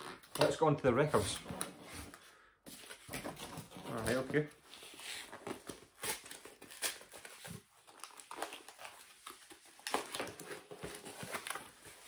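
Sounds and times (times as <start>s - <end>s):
parcel packaging rustling: 2.9s - 12.0s.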